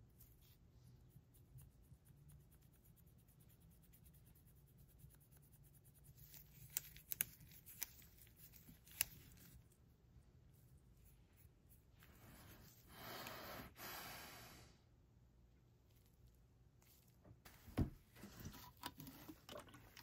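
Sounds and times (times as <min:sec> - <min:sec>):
scratching and rubbing on plastic: 0:00.0 - 0:09.8.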